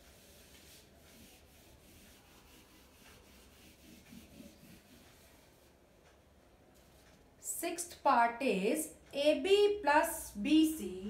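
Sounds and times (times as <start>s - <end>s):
duster rubbing on whiteboard: 0.0s - 5.8s.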